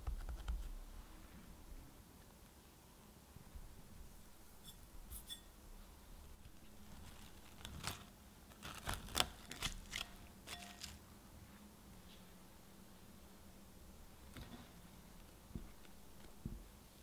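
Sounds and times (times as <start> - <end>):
brief squeak: 4.6 - 5.6
cling wrap crinkling: 6.4 - 11.0.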